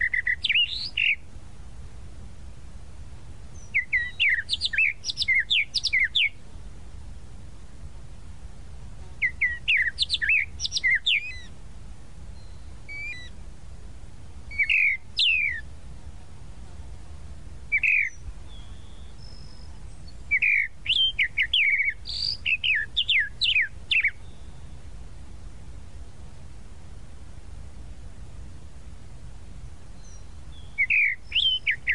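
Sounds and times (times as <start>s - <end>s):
mockingbird singing: 0.0s - 1.3s, 3.5s - 6.4s, 9.2s - 11.6s, 12.3s - 13.4s, 14.5s - 15.7s, 17.7s - 24.8s, 30.0s - 31.9s
faint low rumble: 0.0s - 31.9s.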